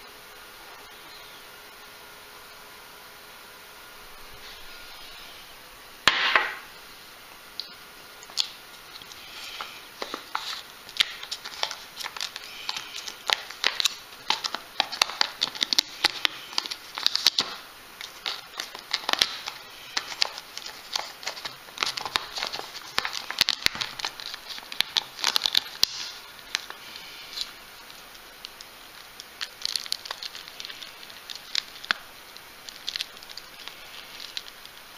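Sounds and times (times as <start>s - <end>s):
plastic film crinkling: 8.2s - 34.9s.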